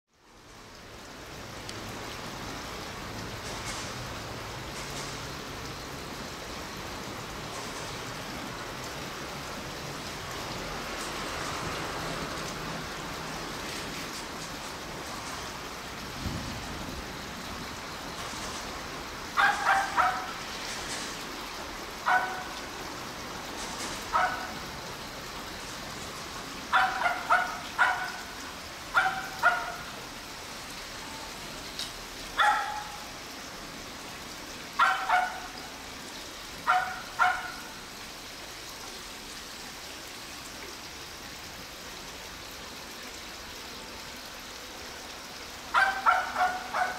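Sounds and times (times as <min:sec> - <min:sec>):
dog barking: 0:19.4 - 0:20.4, 0:22.0 - 0:22.6, 0:24.1 - 0:24.5, 0:26.7 - 0:28.3, 0:28.9 - 0:29.9, 0:32.4 - 0:33.1, 0:34.8 - 0:35.6, 0:36.6 - 0:37.7, 0:45.7 - 0:46.9.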